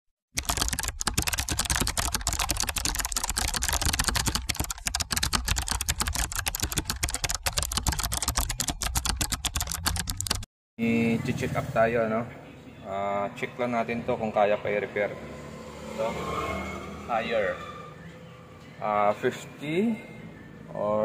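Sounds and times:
keyboard typing clicks: 0.4s - 10.5s.

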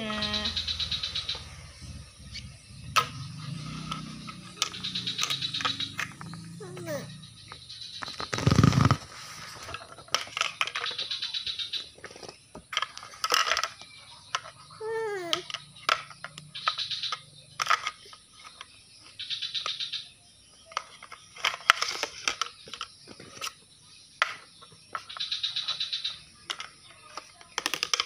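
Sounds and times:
plastic toy dishes clattering: 9.6s - 11.1s, 11.8s - 14.6s, 15.2s - 19.2s, 20.6s - 23.6s, 24.2s - 25.2s, 26.4s - 28.0s.

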